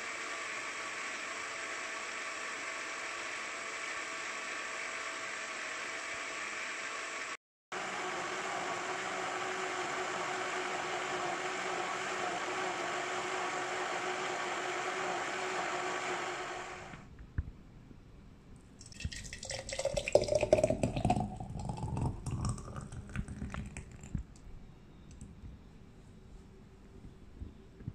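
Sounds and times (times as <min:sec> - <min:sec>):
blender running: 0:00.0 - 0:17.0, 0:19.1 - 0:24.0
thick drink pouring into jar: 0:18.8 - 0:24.3.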